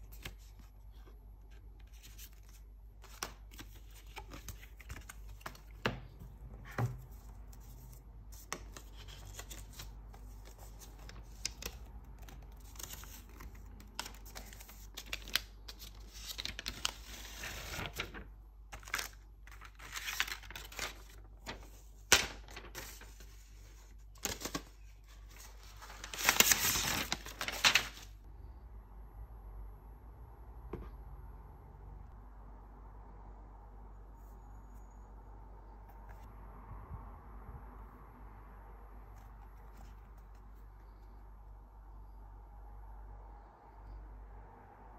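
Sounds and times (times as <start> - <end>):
paper rustling: 0.0 - 28.2.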